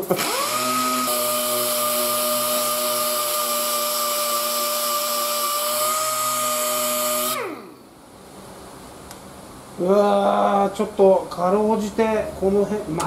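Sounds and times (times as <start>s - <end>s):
air sander whining on metal: 0.0s - 7.8s.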